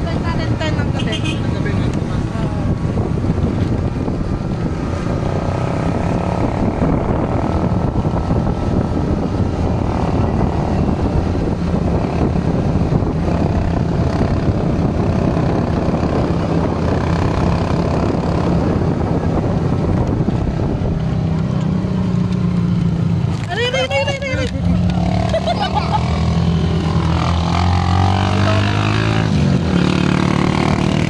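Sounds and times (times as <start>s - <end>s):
road noise: 0.0s - 31.0s.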